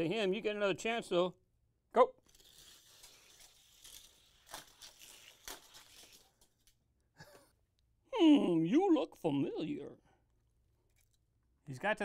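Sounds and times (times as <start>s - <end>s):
toy car rattling on plastic track: 2.3s - 6.3s.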